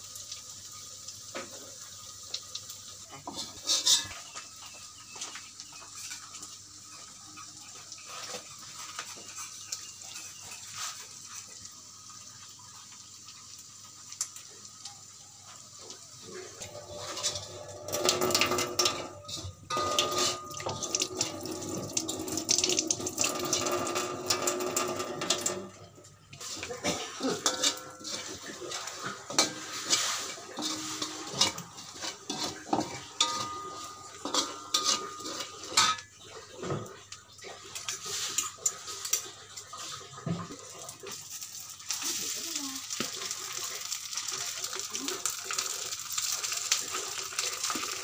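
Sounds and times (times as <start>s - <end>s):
spatula scraping a wok: 3.2s - 4.4s, 16.7s - 20.9s, 27.3s - 36.1s
tap running into sink: 17.2s - 19.1s, 19.7s - 25.7s.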